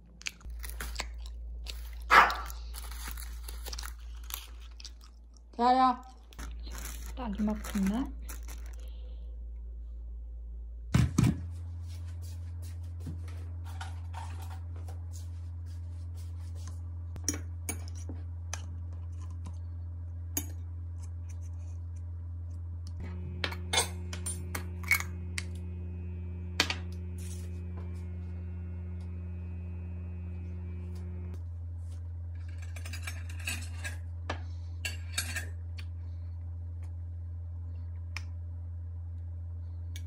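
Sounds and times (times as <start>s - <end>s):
steady low hum: 0.0s - 40.0s
higher hum: 23.0s - 31.4s.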